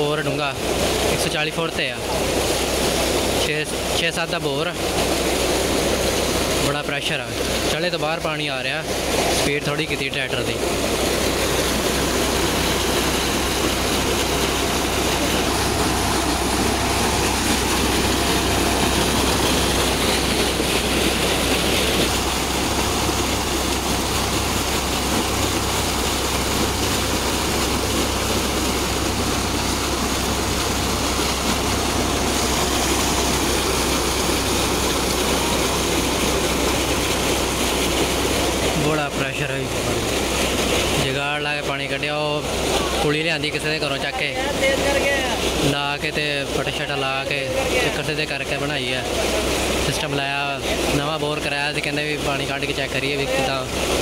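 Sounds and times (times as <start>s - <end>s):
water jet splashing into tank: 0.0s - 54.0s
tractor engine running: 10.6s - 41.0s.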